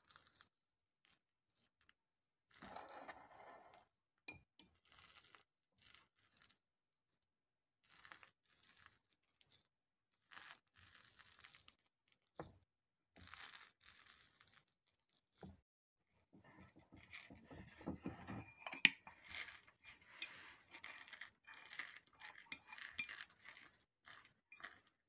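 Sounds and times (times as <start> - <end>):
fork stirring sticky dough: 16.4 - 25.0.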